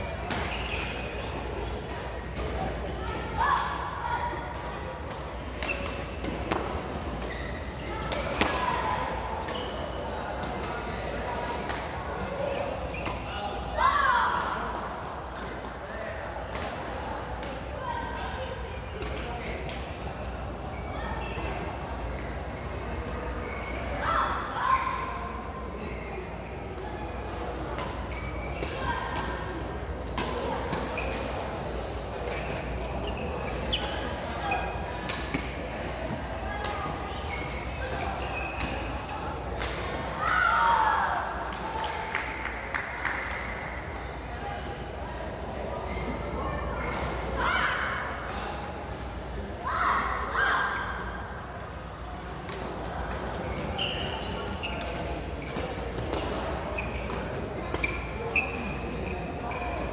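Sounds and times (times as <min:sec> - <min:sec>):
people chattering: 0:00.0 - 0:59.9
sports hall hum: 0:00.0 - 0:59.9
shoe squeaks: 0:00.2 - 0:01.3, 0:07.2 - 0:10.0, 0:20.7 - 0:21.6, 0:22.6 - 0:24.8, 0:28.0 - 0:29.0, 0:30.9 - 0:31.4, 0:32.3 - 0:34.8, 0:37.3 - 0:39.3, 0:45.8 - 0:47.7, 0:53.4 - 0:56.0, 0:56.6 - 0:59.9.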